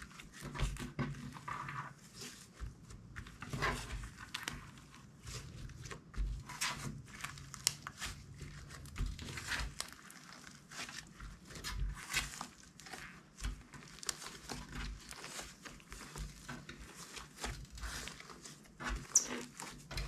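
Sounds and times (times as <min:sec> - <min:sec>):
slime crackling and popping: 0:06.6 - 0:20.0.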